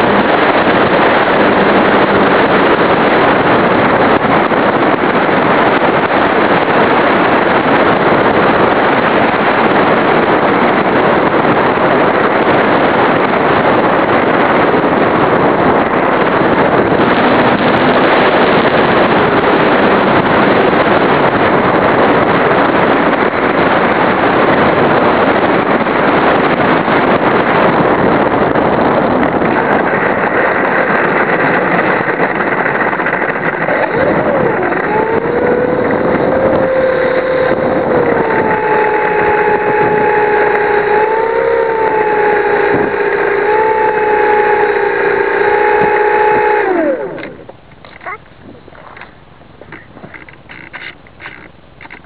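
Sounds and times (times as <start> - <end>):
wind and propeller noise: 0.0 - 52.0.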